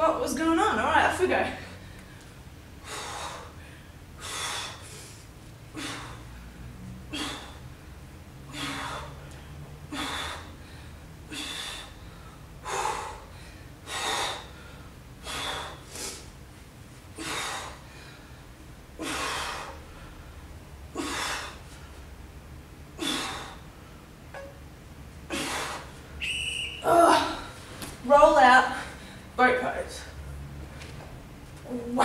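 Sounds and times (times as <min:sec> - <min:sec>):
woman breathing hard: 0:01.6 - 0:16.3, 0:17.1 - 0:22.1, 0:23.0 - 0:24.0, 0:25.3 - 0:26.2.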